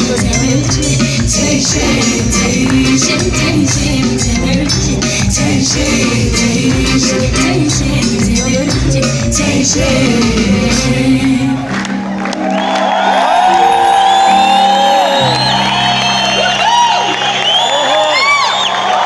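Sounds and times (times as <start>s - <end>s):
drum beat: 0.0s - 10.9s
person singing: 0.0s - 11.8s
live band playing: 0.0s - 18.4s
crowd whooping: 11.8s - 19.0s.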